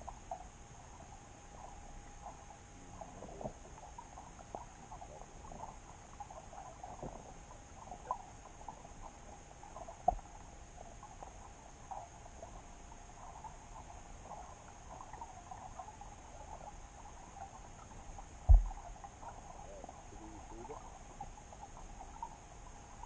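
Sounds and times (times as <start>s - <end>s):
faint underwater hum: 0.0s - 23.0s.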